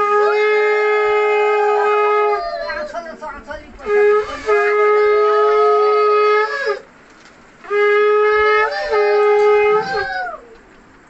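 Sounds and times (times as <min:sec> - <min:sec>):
conch shell blasts: 0:03.8 - 0:06.8, 0:07.6 - 0:10.4.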